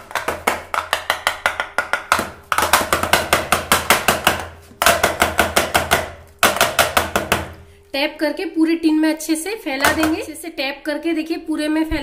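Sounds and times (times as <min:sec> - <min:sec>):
cake tin knocking on stone countertop: 0:00.0 - 0:07.6, 0:09.8 - 0:10.3.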